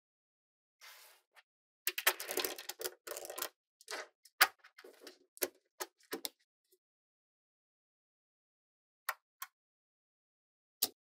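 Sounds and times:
magnetic balls clicking and clattering: 0:01.9 - 0:04.0.

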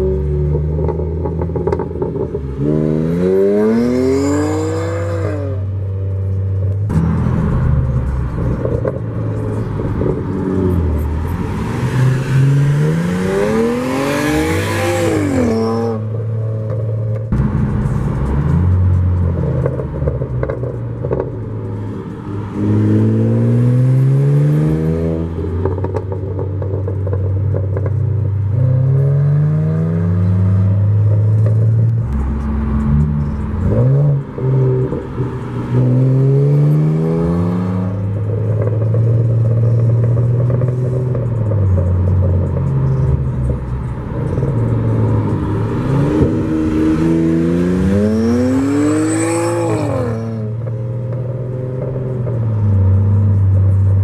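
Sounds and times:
car engine accelerating hard: 0:06.9 - 0:16.2, 0:27.8 - 0:54.0.

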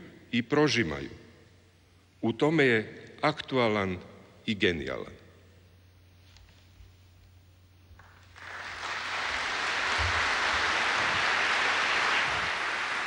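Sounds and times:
audience applauding: 0:08.0 - 0:13.0.

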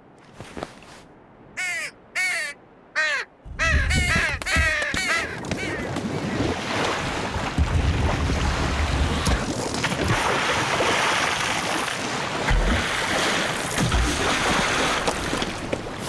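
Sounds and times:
crow cawing: 0:01.6 - 0:05.9
storm wind rushing: 0:03.4 - 0:04.8.

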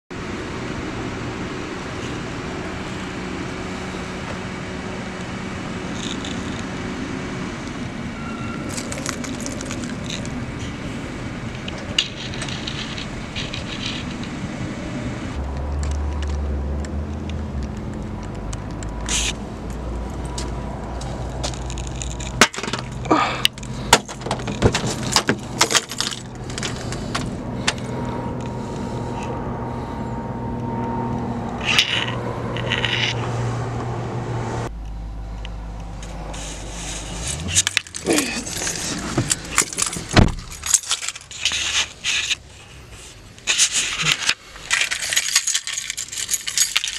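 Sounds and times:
keys jangling: 0:08.7 - 0:10.3, 0:12.0 - 0:14.3, 0:23.6 - 0:27.8, 0:37.2 - 0:42.4, 0:43.5 - 0:46.9
steady low hum: 0:19.3 - 0:46.9
car door opening: 0:37.2 - 0:41.4.

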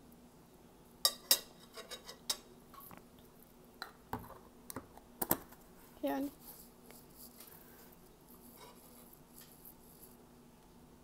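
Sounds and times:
metal spoon scraping a jar: 0:08.4 - 0:10.2.

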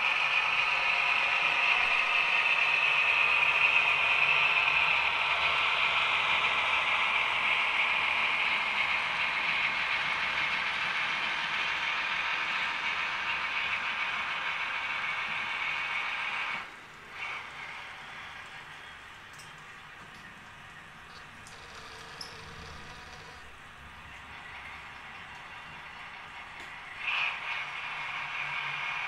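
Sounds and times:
model train whirring on rails: 0:00.0 - 0:29.0.

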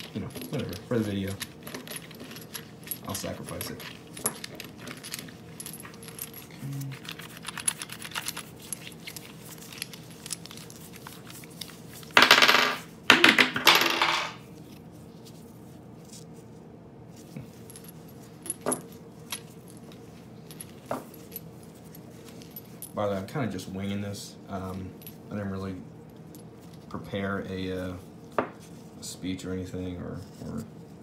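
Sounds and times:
metal cartridges clinking: 0:00.0 - 0:14.4.

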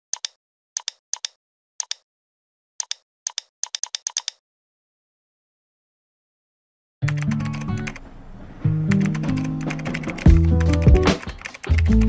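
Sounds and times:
sharp paired clicks: 0:00.1 - 0:02.0, 0:02.8 - 0:04.4.

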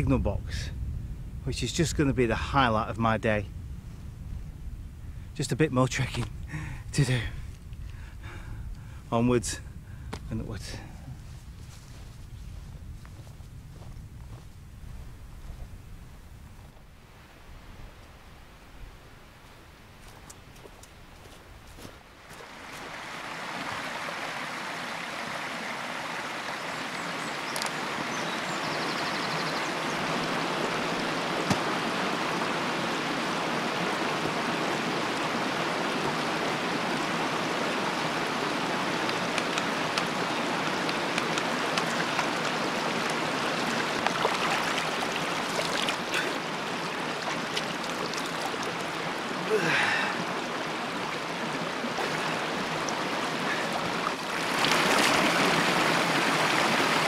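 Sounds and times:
stream flowing over stones: 0:22.1 - 0:57.0.

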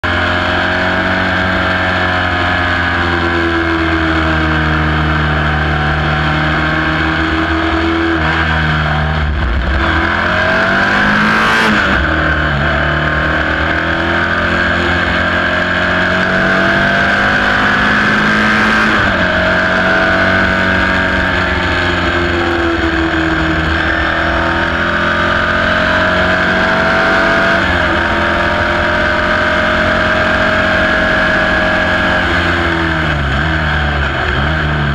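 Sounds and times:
racing car engine accelerating: 0:00.0 - 0:34.9.

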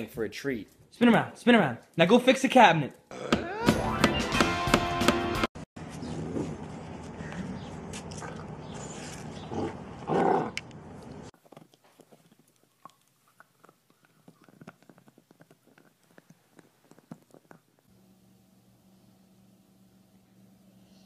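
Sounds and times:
dog gnawing chew stick: 0:11.4 - 0:17.9.

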